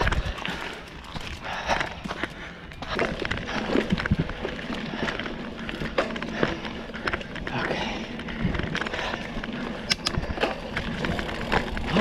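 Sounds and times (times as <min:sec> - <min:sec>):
bike rattling over roots: 0:00.0 - 0:12.0
bike tyres rolling on dirt: 0:00.0 - 0:12.0
wind rumble on microphone: 0:02.8 - 0:05.2.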